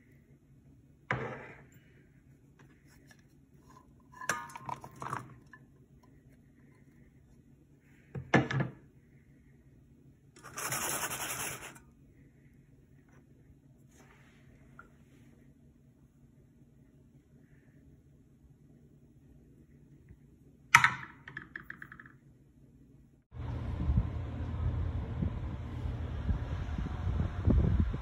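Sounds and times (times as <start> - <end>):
food clattering into metal bowl: 4.1 - 5.6.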